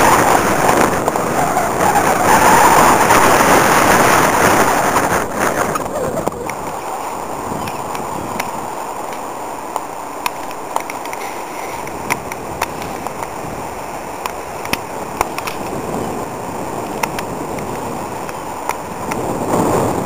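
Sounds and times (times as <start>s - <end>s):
wind on microphone: 0.0s - 20.0s
sharp clicks: 14.2s - 15.7s.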